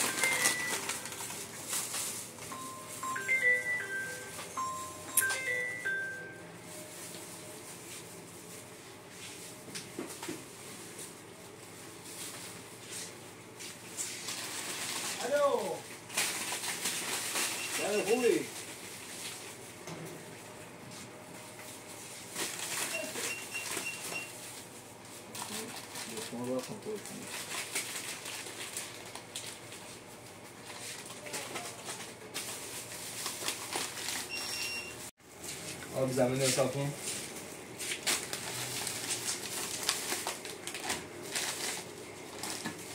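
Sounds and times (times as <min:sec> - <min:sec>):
plastic snack packets rustling: 0:00.0 - 0:04.2, 0:13.9 - 0:19.4, 0:22.3 - 0:24.2, 0:25.2 - 0:34.5, 0:36.1 - 0:42.9.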